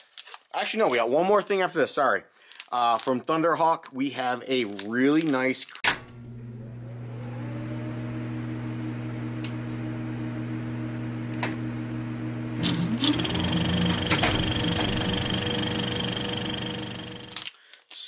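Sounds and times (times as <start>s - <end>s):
film projector motor hum: 6.1s - 17.4s
short rising whine: 12.5s - 17.4s.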